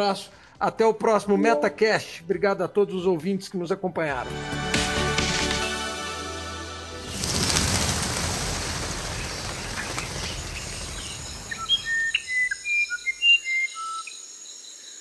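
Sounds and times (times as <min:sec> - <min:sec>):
rush of noise: 0:07.0 - 0:12.0
small bird chirping: 0:07.2 - 0:15.0.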